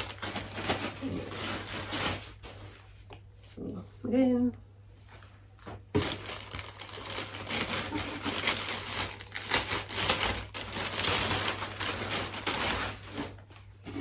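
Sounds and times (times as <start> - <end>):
plastic bag crinkling: 0.0 - 2.9, 5.9 - 14.0.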